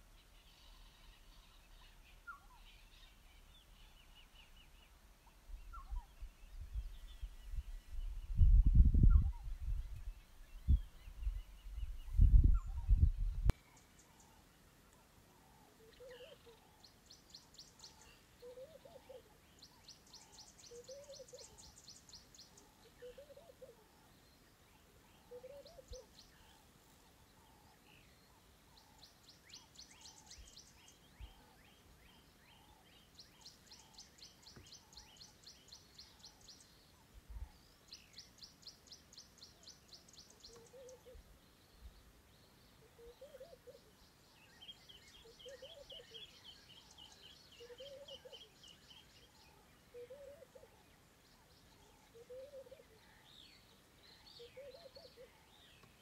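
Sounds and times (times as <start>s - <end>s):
low hooting bird call: 12.6s - 24.1s, 24.8s - 31.7s, 39.5s - 41.3s, 42.8s - 44.0s, 44.6s - 53.3s, 54.1s - 55.8s.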